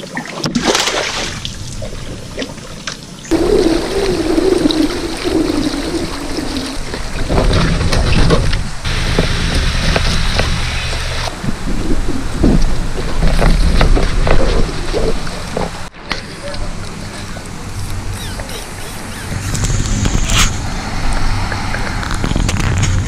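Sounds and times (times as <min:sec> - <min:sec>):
water splash: 0:00.0 - 0:15.9
water and wind noise: 0:00.0 - 0:23.0
wavering hum: 0:03.3 - 0:15.9, 0:16.7 - 0:23.0.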